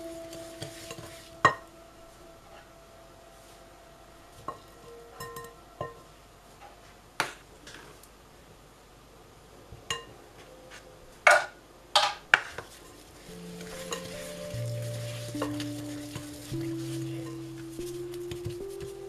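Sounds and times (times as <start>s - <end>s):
utensils clinking against glass bowl: 13.3s - 17.7s.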